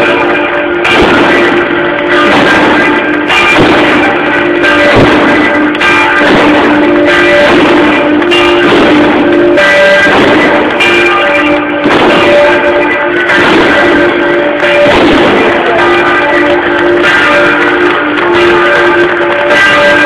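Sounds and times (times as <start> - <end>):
church bell ringing: 0.0 - 20.0.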